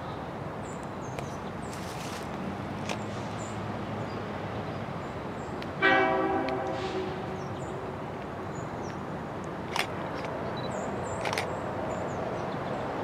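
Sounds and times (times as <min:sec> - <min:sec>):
train rumbling: 0:05.6 - 0:13.0
locomotive horn blast: 0:05.8 - 0:07.4.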